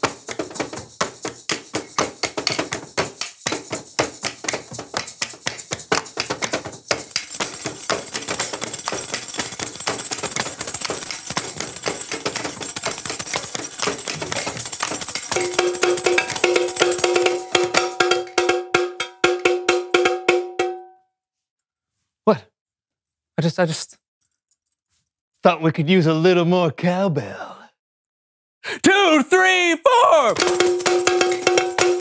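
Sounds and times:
sticks tapping: 0.0s - 20.9s
tambourine jingling: 0.0s - 20.9s, 30.2s - 32.0s
cowbell struck with stick: 1.5s - 21.0s, 30.4s - 32.0s.

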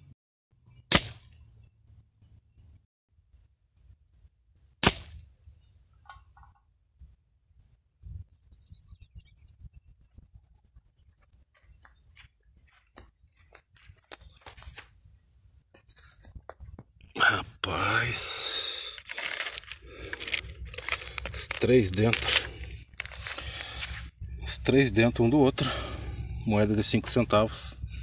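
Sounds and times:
air rifle shot hitting tin can: 0.9s - 1.4s, 4.8s - 5.4s.

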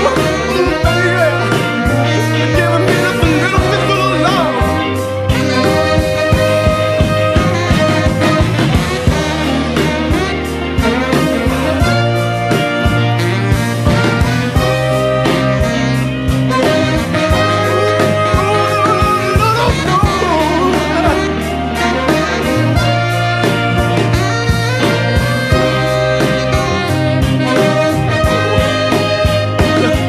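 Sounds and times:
bass line: 0.0s - 30.0s
steady drum beat: 0.0s - 30.0s
wavering lead melody: 0.0s - 30.0s.

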